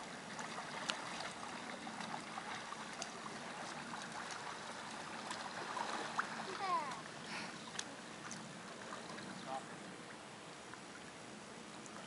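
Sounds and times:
lake water lapping: 0.0 - 12.0.

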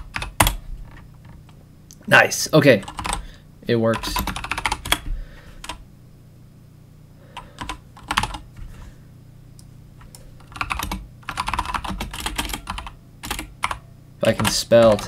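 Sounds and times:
typing on computer keyboard: 0.0 - 0.6, 2.8 - 3.2, 3.9 - 5.8, 7.4 - 8.4, 10.1 - 15.0
low steady hum: 0.0 - 15.0.

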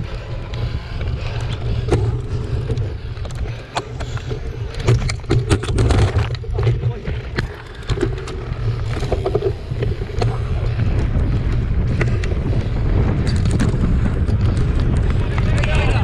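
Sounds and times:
bike rattles and clicks: 0.0 - 16.0
wind buffeting microphone: 0.0 - 16.0.

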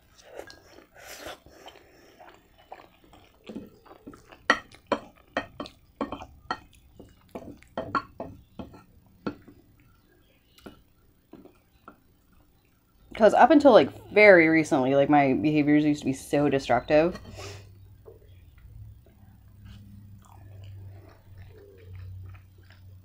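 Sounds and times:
wet chewing clicks: 0.1 - 13.2, 18.2 - 23.0.

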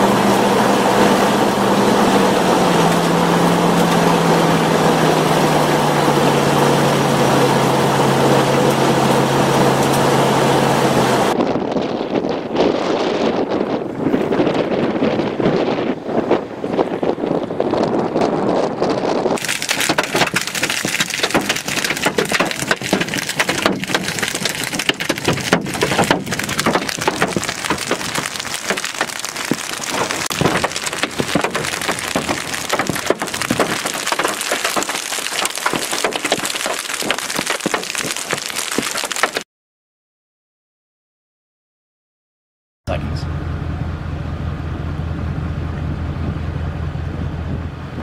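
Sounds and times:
wind rumbling on microphone: 0.0 - 39.4, 44.8 - 48.0
hail hitting a car and road: 19.4 - 39.4.

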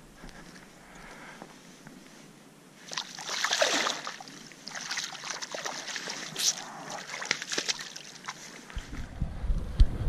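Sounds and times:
fish splashing in shallow water: 2.8 - 8.8.

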